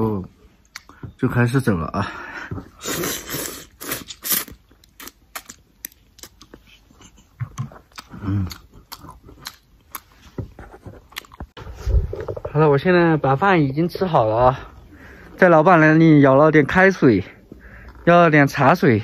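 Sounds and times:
slurping noodles: 2.8s - 5.5s
wet chewing and mouth smacks: 3.8s - 10.3s, 11.0s - 11.6s.

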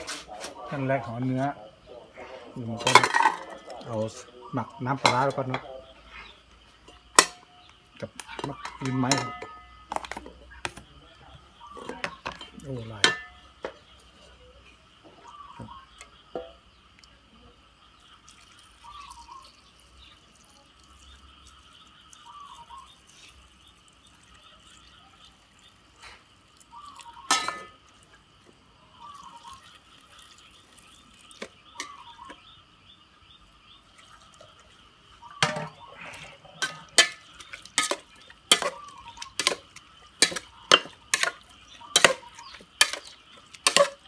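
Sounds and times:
metal spoon clinking against pot: 5.0s - 5.7s, 7.1s - 7.5s, 8.2s - 10.2s, 11.8s - 13.4s, 27.2s - 27.8s, 31.8s - 32.3s, 35.4s - 44.0s
liquid pouring into a pot: 18.0s - 25.8s, 28.9s - 32.3s.

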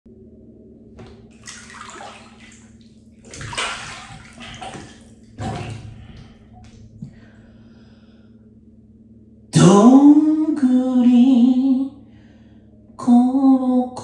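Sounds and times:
steady low hum: 0.1s - 14.0s
bath water sloshing and splashing: 1.0s - 7.4s.

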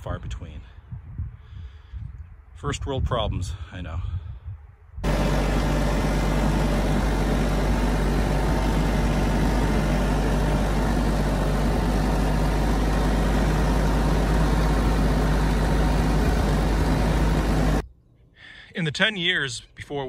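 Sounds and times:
engine running steadily: 5.0s - 17.8s.

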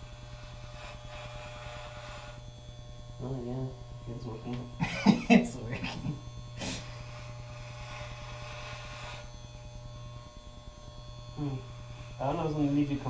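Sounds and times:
electric hair clippers buzzing: 0.0s - 13.0s.

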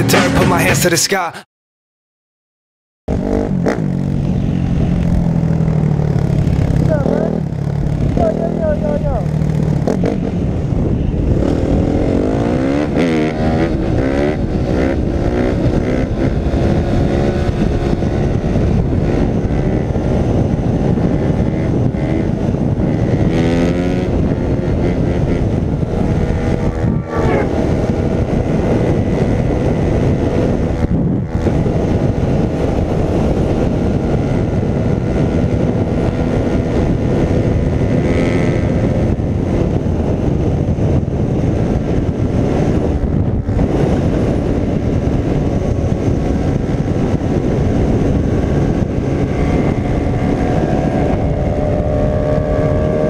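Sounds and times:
wind roar on microphone: 3.1s - 53.0s
dirt bike engine revving: 19.1s - 28.6s, 47.4s - 53.0s.

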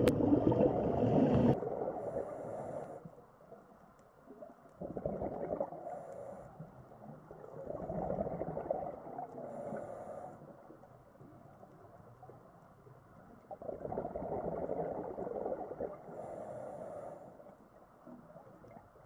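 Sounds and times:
exhaled air bubbling underwater: 0.0s - 3.2s, 4.2s - 19.0s
regulator inhale hiss: 1.2s - 3.2s, 5.8s - 6.8s, 9.4s - 10.7s, 16.1s - 17.6s.

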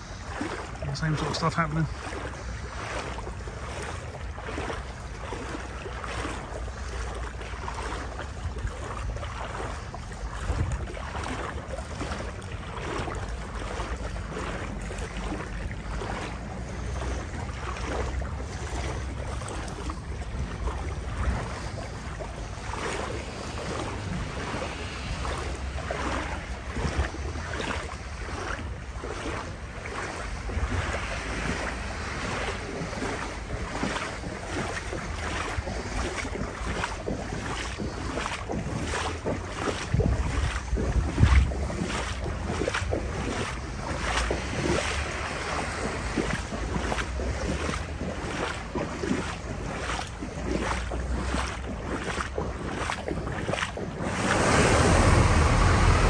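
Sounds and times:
footsteps splashing through water: 0.0s - 56.0s
wind buffeting microphone: 0.0s - 56.0s.

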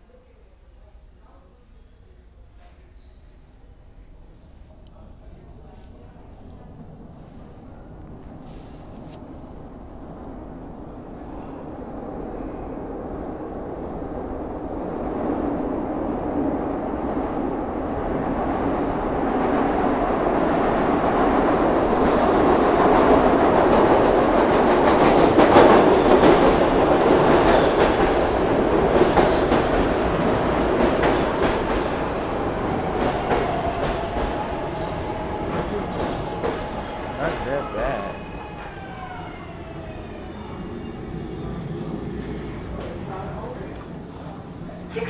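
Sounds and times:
subway train rumbling: 0.0s - 45.0s
high wheel squeal: 34.9s - 42.4s.

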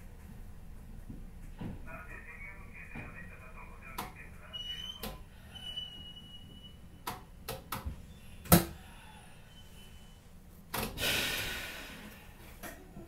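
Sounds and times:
burst of hissing: 11.0s - 12.1s.

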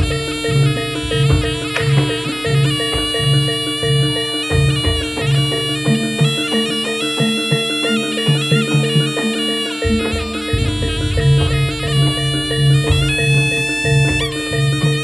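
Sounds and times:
low drumming: 0.0s - 6.4s, 9.8s - 15.0s
held gamelan tones: 0.0s - 15.0s
reedy shawm melody: 0.0s - 15.0s.

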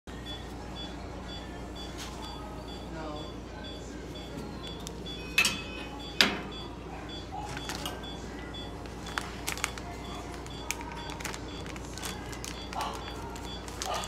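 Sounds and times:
faint rapid beeping: 0.1s - 14.0s
paper and plastic pouch crinkling: 8.8s - 14.0s.

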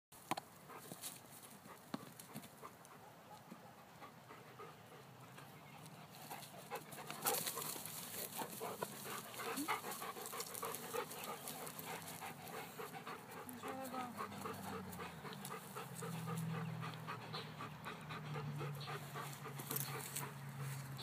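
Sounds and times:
dog panting: 0.6s - 21.0s.

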